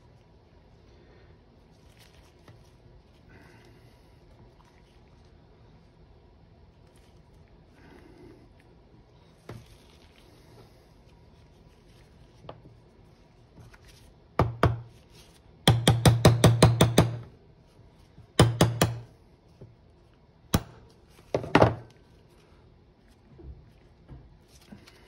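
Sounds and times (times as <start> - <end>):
hammer tapping metal: 15.7 - 17.3, 18.4 - 19.1.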